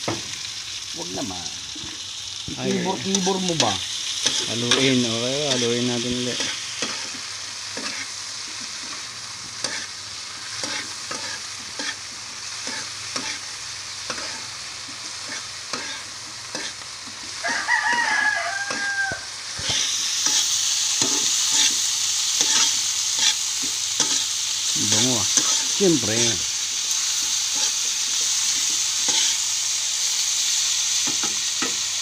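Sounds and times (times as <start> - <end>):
crickets sizzling in a pan: 0.0 - 32.0
metal spatula scraping pan: 10.6 - 12.0, 15.2 - 16.8, 22.4 - 24.2
rooster crowing: 17.4 - 19.5.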